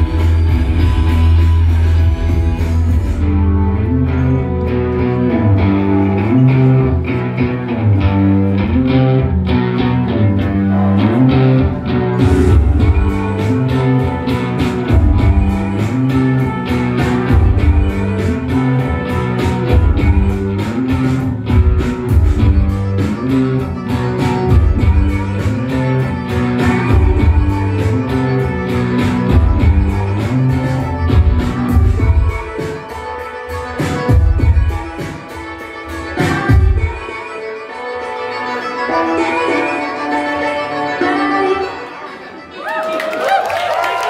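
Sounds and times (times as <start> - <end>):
bass guitar: 0.0 - 35.1
electric guitar: 0.0 - 42.0.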